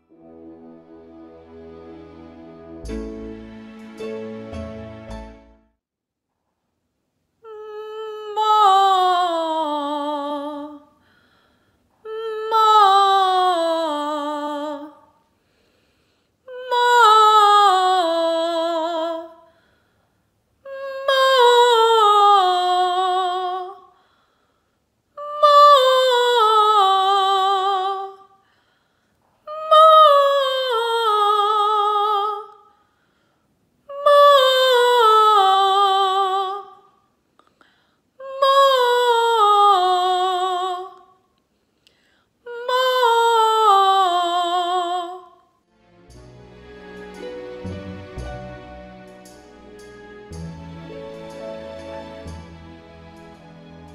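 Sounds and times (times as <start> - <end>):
woman singing vocal scales: 7.4 - 11.0, 12.0 - 15.2, 16.4 - 19.5, 20.6 - 24.0, 25.2 - 28.4, 29.4 - 32.6, 33.9 - 36.9, 38.2 - 41.2, 42.4 - 45.5.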